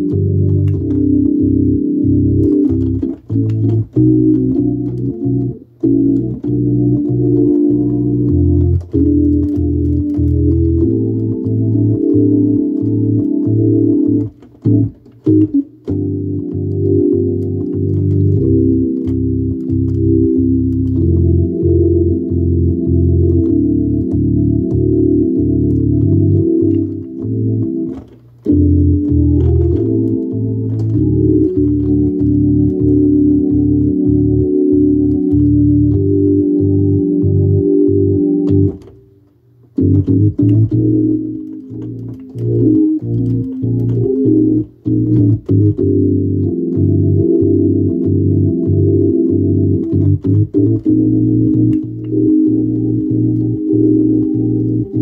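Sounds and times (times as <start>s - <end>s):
organ bass line: 0.0s - 55.0s
organ chords: 0.0s - 55.0s.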